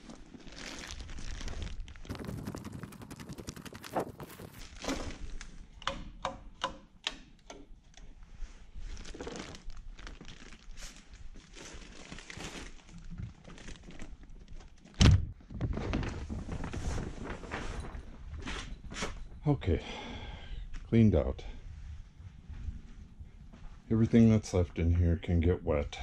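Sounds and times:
rustling and scraping: 0.0 - 5.5, 15.4 - 19.4.

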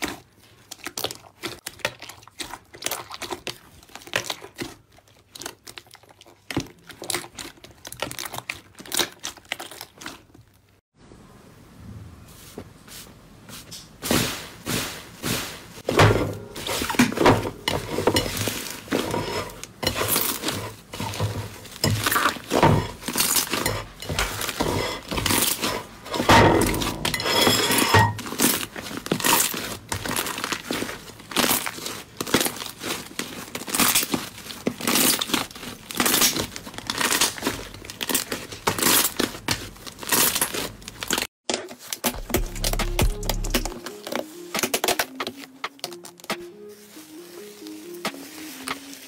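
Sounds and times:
hands kneading sticky slime: 0.0 - 10.4, 28.2 - 41.2.

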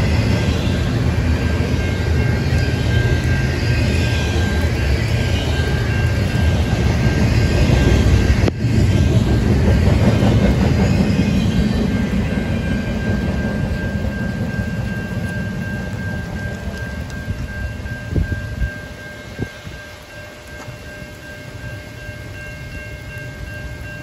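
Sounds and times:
crossing bell ringing: 0.0 - 24.0
heavy rain: 0.0 - 24.0
train cars clattering over rails: 6.3 - 17.1.

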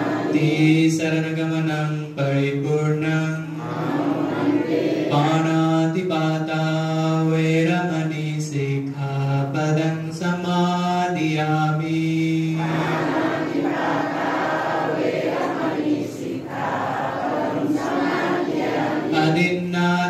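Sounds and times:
monk chanting into a microphone: 0.0 - 12.9, 19.1 - 20.0
congregation chanting in chorus: 0.0 - 20.0.

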